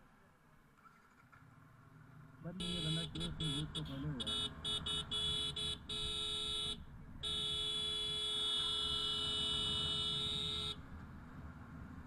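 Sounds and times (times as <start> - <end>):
motorcycle horn honking: 2.6 - 10.8.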